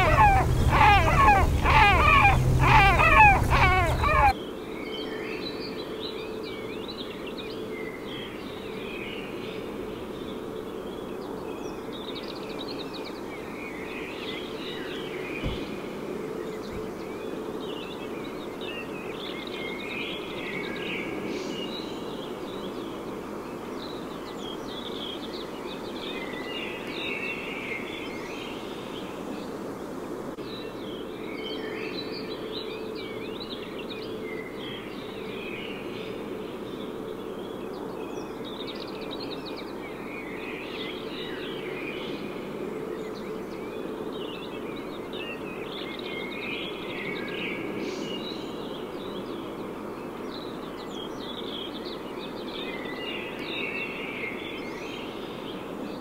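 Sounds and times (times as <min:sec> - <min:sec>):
eagle harsh yelping calls: 0:00.0 - 0:04.3
steady low hum: 0:00.0 - 0:04.4
small songbirds chirping: 0:00.0 - 0:29.4, 0:30.4 - 0:56.0.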